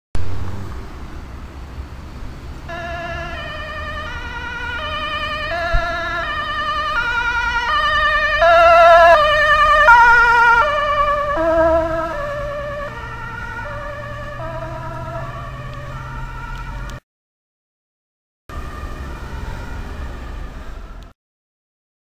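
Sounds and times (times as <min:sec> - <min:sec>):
low traffic rumble: 0:00.2 - 0:17.0, 0:18.5 - 0:21.1
two-tone ambulance siren: 0:02.6 - 0:17.0, 0:18.5 - 0:21.2.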